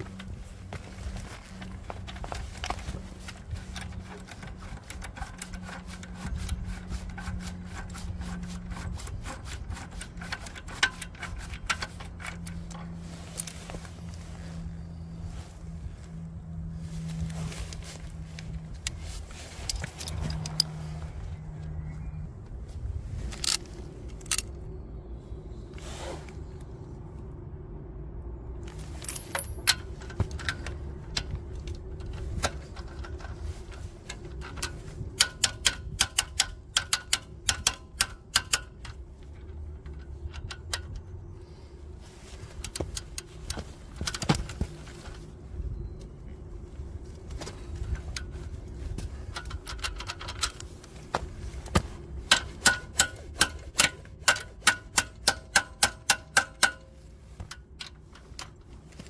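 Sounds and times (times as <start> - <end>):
hand ratchet clicking: 34.4 - 39.0, 52.3 - 56.9.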